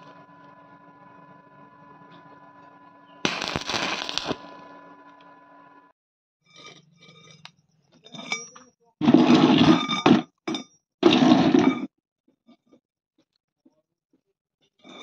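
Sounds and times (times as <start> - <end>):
steel tube scraping concrete floor: 6.4 - 10.4, 11.0 - 11.9.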